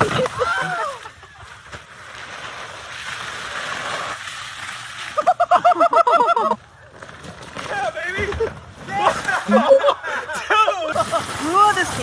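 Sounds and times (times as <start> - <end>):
high-pitched laughter: 5.2 - 6.6.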